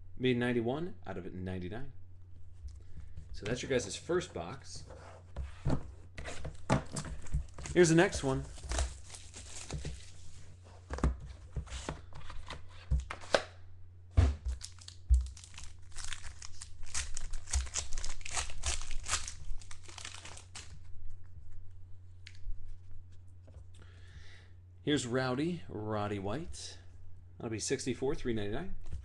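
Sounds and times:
foil wrapper crinkling and tearing: 0:07.6 - 0:10.2, 0:14.5 - 0:20.8.

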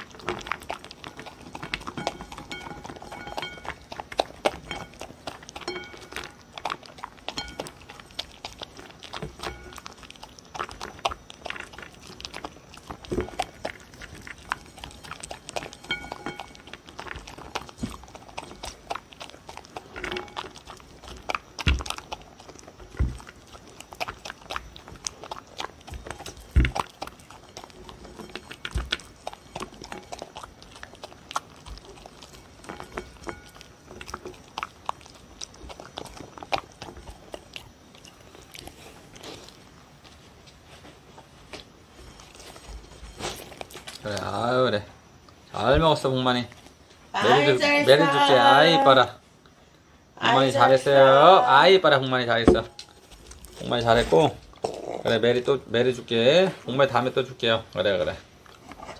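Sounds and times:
teeth clicking on ceramic bowl: 0:00.0 - 0:38.7
dog crunching kibble: 0:00.0 - 0:58.9
thumps: 0:52.4 - 0:53.1.

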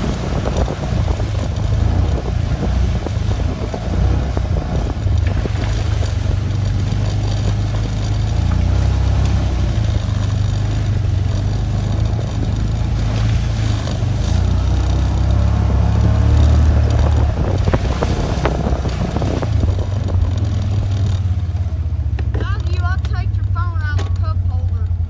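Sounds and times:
body panels rattling: 0:00.0 - 0:25.0
off-road vehicle engine drone: 0:00.0 - 0:25.0.

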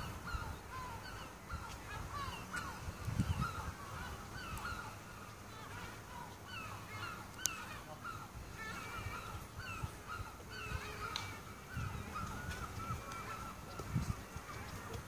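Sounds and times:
flock of birds calling: 0:00.0 - 0:15.0
wind bump on microphone: 0:01.9 - 0:04.8, 0:11.7 - 0:15.0.

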